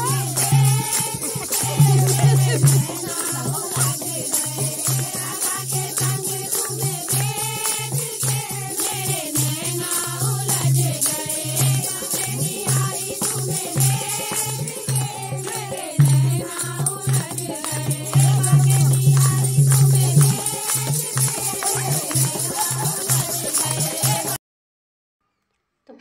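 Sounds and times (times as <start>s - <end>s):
low drum beat: 0.0s - 4.0s
jingling hand percussion: 0.0s - 24.4s
voices singing: 0.0s - 24.4s.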